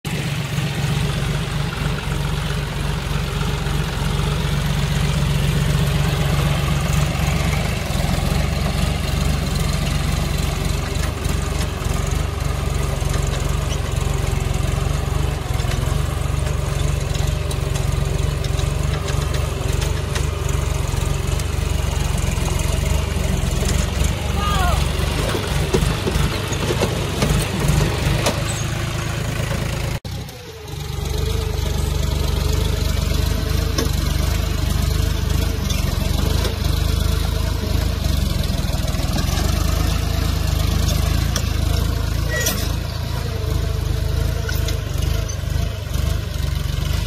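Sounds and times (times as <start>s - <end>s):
tractor diesel engine running: 0.0s - 47.0s.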